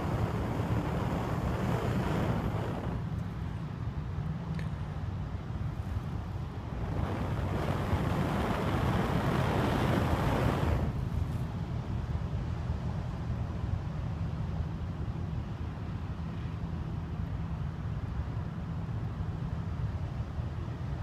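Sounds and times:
flames flaring up: 0.0 - 3.2, 6.6 - 11.1
wind rumble on microphone: 0.0 - 21.0.

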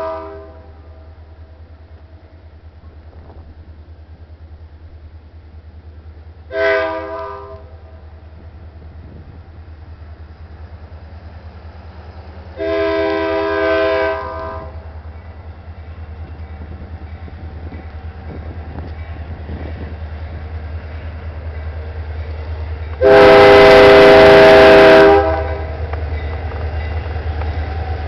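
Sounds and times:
locomotive air horn blasts: 0.0 - 1.0, 6.5 - 8.0, 12.6 - 14.8, 23.0 - 25.8.

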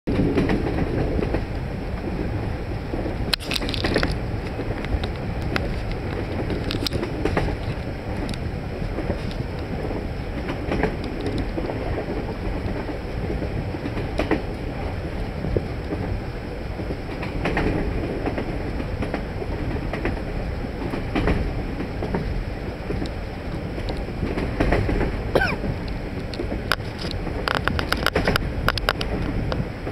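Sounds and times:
train wheels rumbling: 0.1 - 29.9
sharp clicks and knocks: 3.3 - 8.4, 26.2 - 29.6.

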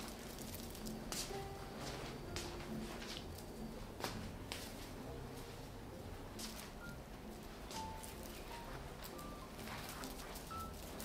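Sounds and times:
rustling artificial pine branches: 0.0 - 3.6, 7.4 - 11.0.

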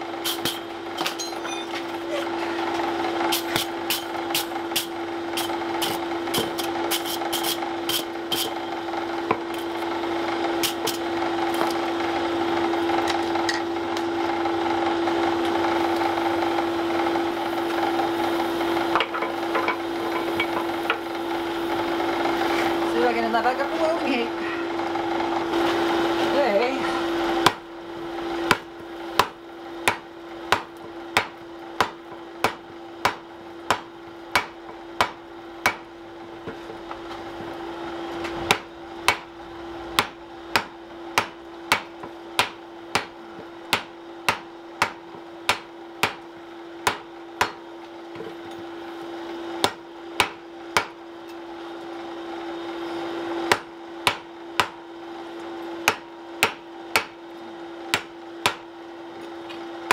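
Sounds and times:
hammer striking iron on anvil: 0.3 - 1.9, 28.5 - 35.8, 38.5 - 39.3, 40.0 - 46.2, 46.8 - 47.6, 49.6 - 51.0, 53.5 - 54.8, 55.8 - 57.2, 57.9 - 58.6.

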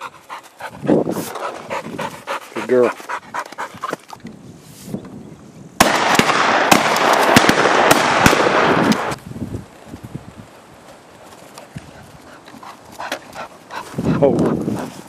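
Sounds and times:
shotgun shots: 5.8 - 9.2.

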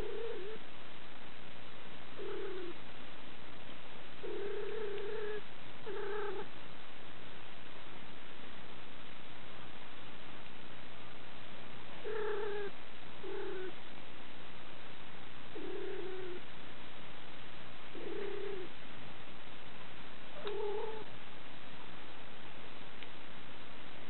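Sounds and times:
cat mewing: 4.2 - 6.5, 12.0 - 13.8, 15.6 - 16.4, 20.4 - 21.1.

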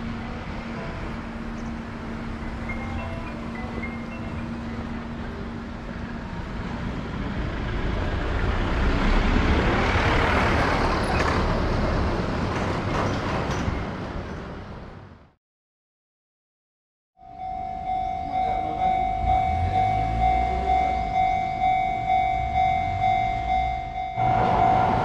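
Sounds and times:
motor vehicle driving past: 6.8 - 12.5, 24.2 - 25.0.

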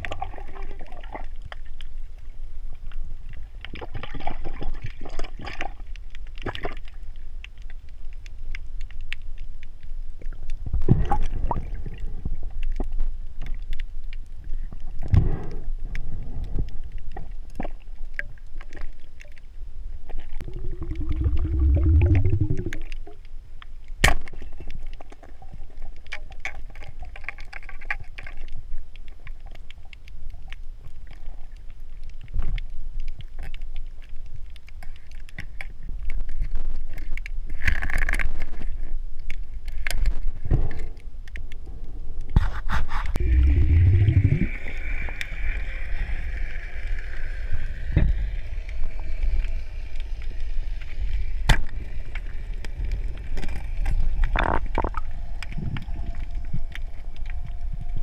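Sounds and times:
underwater rumble: 0.0 - 58.0.

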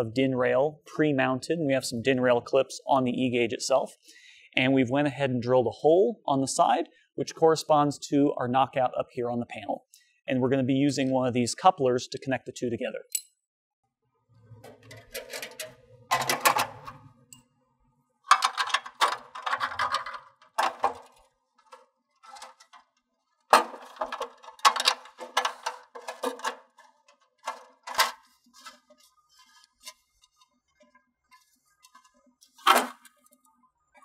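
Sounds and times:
metal parts clicking and rattling: 14.8 - 16.9, 18.3 - 22.9, 23.5 - 28.3.

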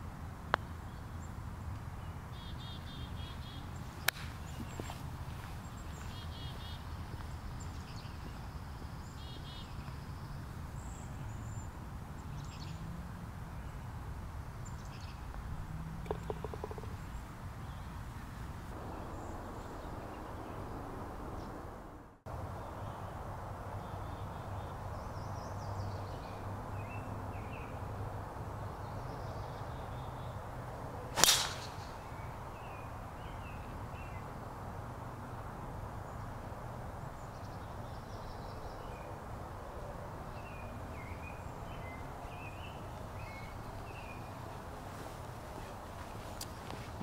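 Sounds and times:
outdoor background noise: 0.0 - 47.0
birds chirping: 0.5 - 12.9, 13.5 - 21.6, 31.2 - 34.2, 40.3 - 47.0
golf club striking ball: 16.0 - 17.0, 31.2 - 32.1.

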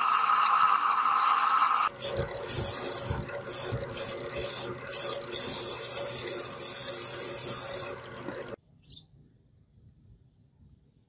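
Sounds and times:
electric motor hum: 0.0 - 8.6.

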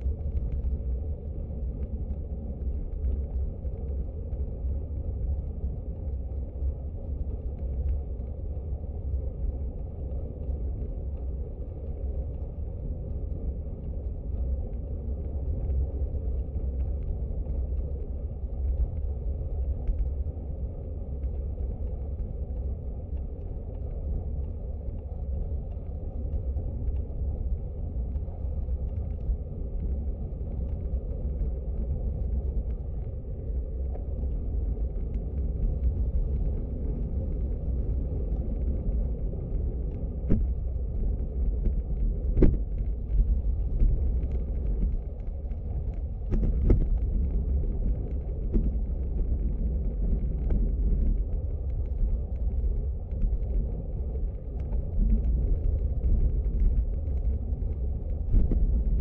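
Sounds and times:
bicycle tyre rumble on asphalt: 0.0 - 59.0
wind buffeting microphone: 28.7 - 59.0.

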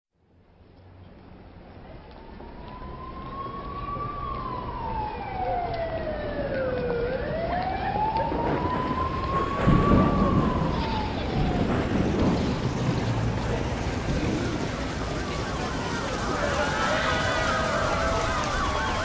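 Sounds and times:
emergency vehicle siren wailing: 1.7 - 19.0
low rumble: 8.1 - 18.6.

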